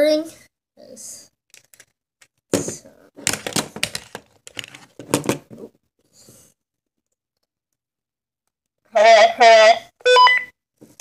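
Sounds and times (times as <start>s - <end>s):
plastic clicks and knocks: 2.6s - 5.6s.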